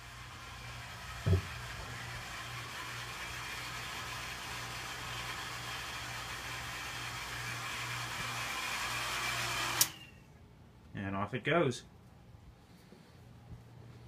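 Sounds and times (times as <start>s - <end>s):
water pump motor running: 0.0s - 10.0s.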